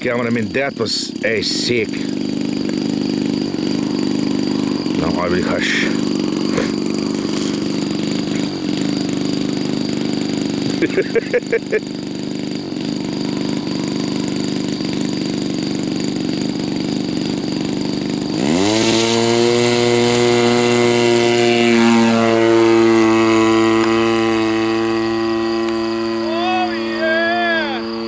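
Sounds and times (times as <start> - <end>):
model plane engine revving: 0.0 - 28.0.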